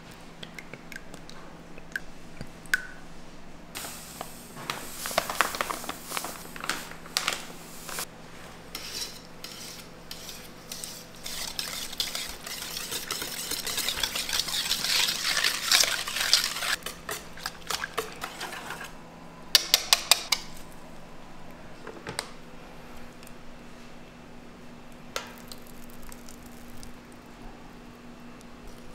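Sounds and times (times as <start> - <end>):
utensil scraping metal bowl: 8.7 - 19.0.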